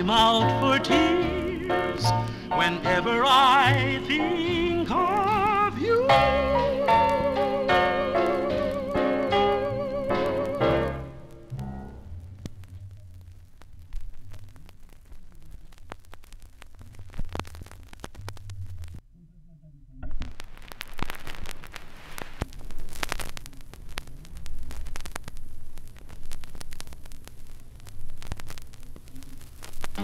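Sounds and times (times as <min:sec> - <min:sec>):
vinyl crackle and hiss: 0:00.0 - 0:19.0, 0:20.0 - 0:30.0
low rumble: 0:09.7 - 0:19.0.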